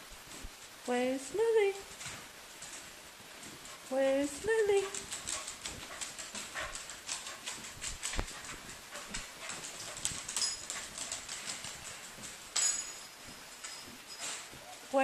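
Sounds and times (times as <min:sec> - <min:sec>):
dog claws clicking on wood floor: 0:04.8 - 0:14.6.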